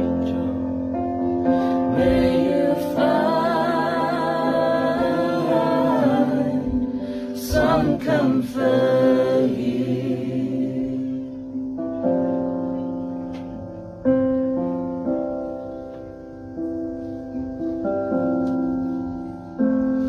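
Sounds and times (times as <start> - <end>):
slow keyboard chords: 0.0 - 20.0
voices singing in harmony: 1.5 - 11.6.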